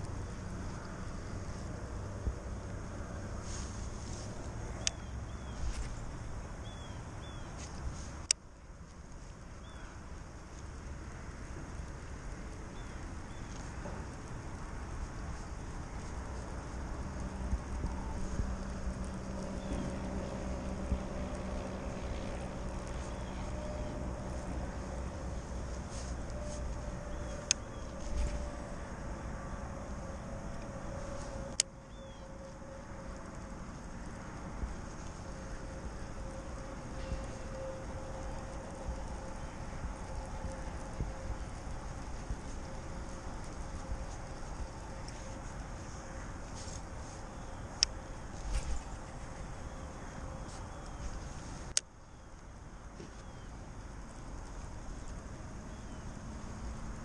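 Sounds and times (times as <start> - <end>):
faint hum: 0.0 - 57.0
wind rumbling on microphone: 0.0 - 57.0
bird chirps: 4.8 - 6.0, 6.6 - 7.6, 31.9 - 32.4.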